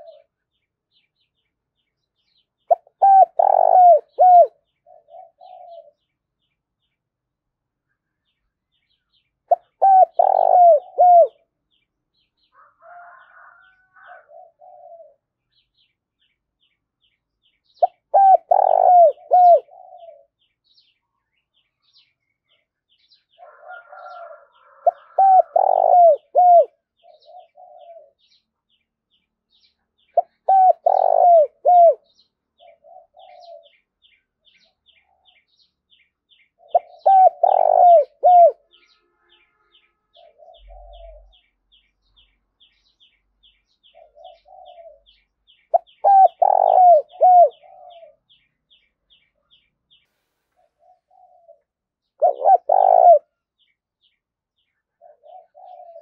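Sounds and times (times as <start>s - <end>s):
dove cooing: 0.0s - 0.4s, 2.7s - 6.1s, 9.5s - 11.5s, 12.6s - 15.3s, 17.8s - 20.4s, 23.4s - 28.3s, 30.2s - 33.9s, 36.6s - 38.8s, 40.1s - 41.4s, 43.8s - 48.5s, 50.6s - 53.4s, 55.0s - 56.0s.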